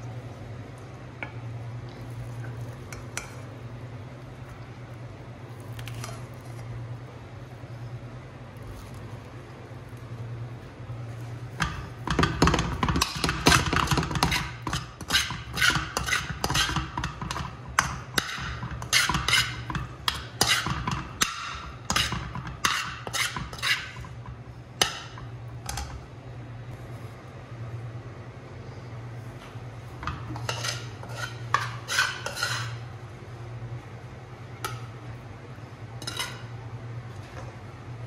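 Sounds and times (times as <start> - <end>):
steady low hum: 0.0 - 38.0
metal spoon scraping a wok: 13.2 - 17.5, 18.2 - 24.2, 30.0 - 32.9, 36.0 - 36.5.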